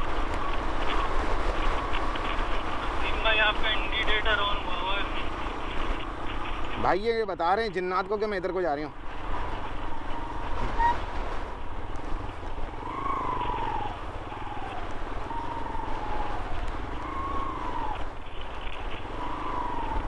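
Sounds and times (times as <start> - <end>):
wind on microphone: 8.9 - 20.0.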